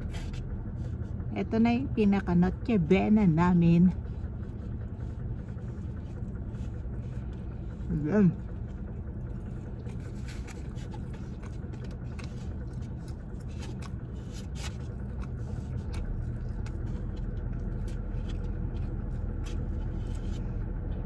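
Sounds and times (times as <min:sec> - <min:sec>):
car engine hum inside cabin: 0:00.0 - 0:21.0
clicks and scrapes of eating: 0:04.4 - 0:21.0.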